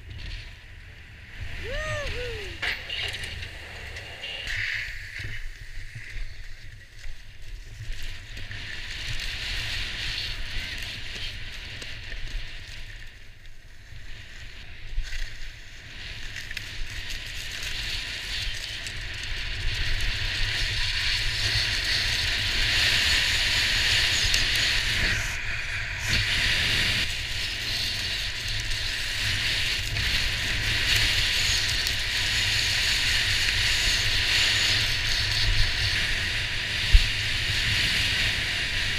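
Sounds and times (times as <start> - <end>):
wind on microphone: 0.0 - 13.0, 14.0 - 38.9
skis hissing on snow: 19.7 - 38.9.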